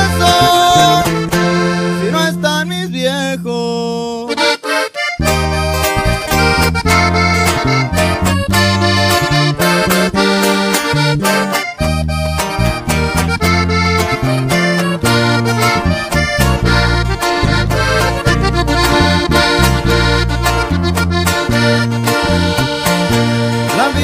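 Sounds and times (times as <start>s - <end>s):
button accordion melody: 0.0s - 24.0s
stepping bass line: 0.0s - 24.0s
strummed rhythm: 0.0s - 24.0s.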